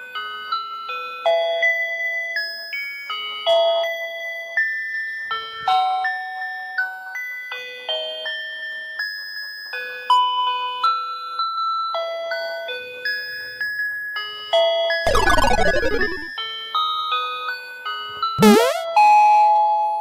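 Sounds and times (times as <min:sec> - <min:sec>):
falling buzzy sweep: 0:15.1 - 0:16.3, 0:18.4 - 0:18.8
tinny electronic beeping tune: 0:15.1 - 0:16.3, 0:18.4 - 0:18.8.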